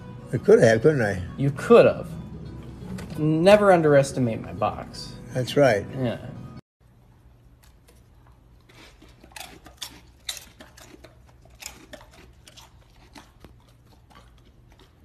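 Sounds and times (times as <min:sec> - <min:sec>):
dog licking and smacking: 0:07.5 - 0:15.0.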